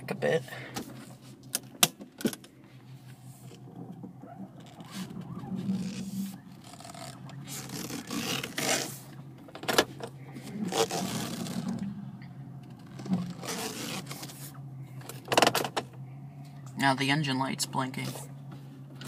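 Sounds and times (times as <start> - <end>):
car engine rough idle: 0.0 - 19.0
phone scraping against steering wheel: 2.6 - 15.9.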